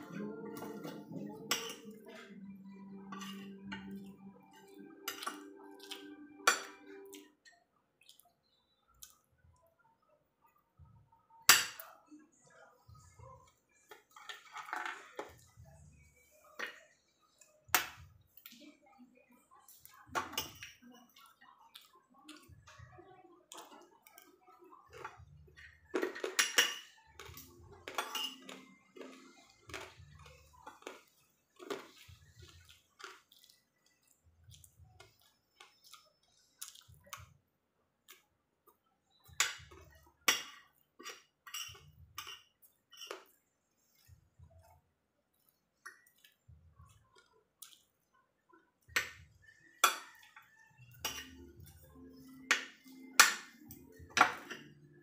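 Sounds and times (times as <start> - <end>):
soft chewing: 0.0 - 55.0
cutlery clinking on a ceramic plate: 0.2 - 2.4, 3.0 - 7.6, 13.9 - 15.4, 20.2 - 21.2, 23.6 - 32.0, 39.2 - 43.4, 48.9 - 54.9.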